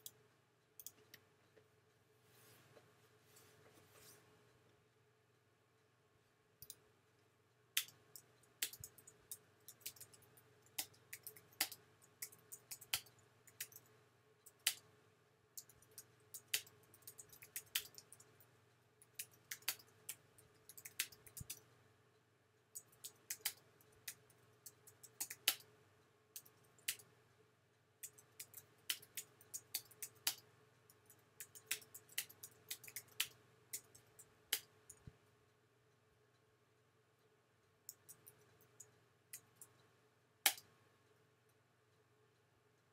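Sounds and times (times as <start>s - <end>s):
faint steady hum: 0.0s - 42.9s
keyboard typing clicks: 7.8s - 13.9s.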